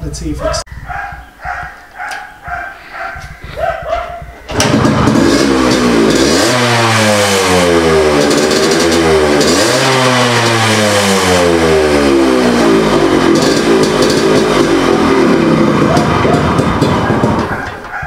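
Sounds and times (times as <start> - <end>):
two-stroke engine revving: 4.5 - 17.8.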